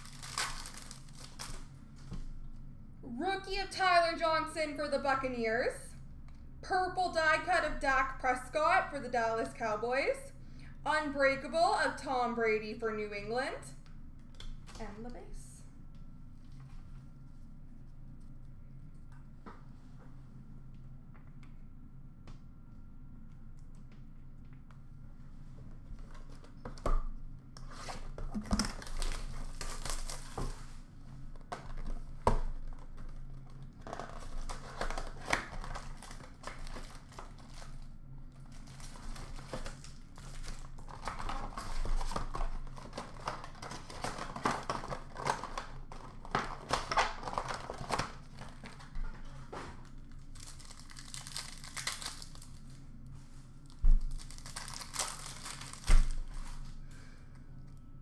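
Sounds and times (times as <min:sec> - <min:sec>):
plastic wrappers crinkling and tearing: 0:00.0 - 0:02.1, 0:27.8 - 0:52.8, 0:53.6 - 0:56.8.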